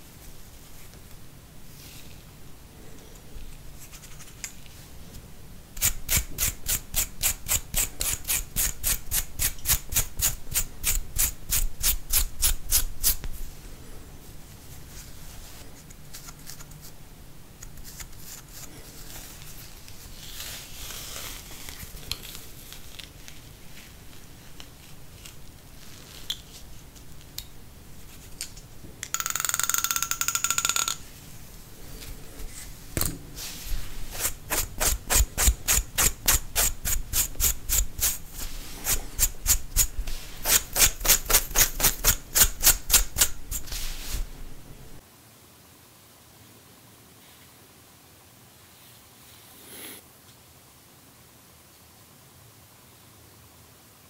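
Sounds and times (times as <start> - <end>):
fingernails scratching skin: 34.1 - 43.9.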